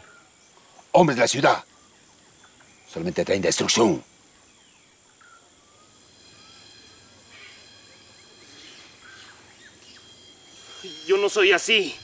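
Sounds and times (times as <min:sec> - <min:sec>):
high-pitched insect drone: 0:00.0 - 0:12.0
bird chirps and whistles: 0:05.2 - 0:12.0.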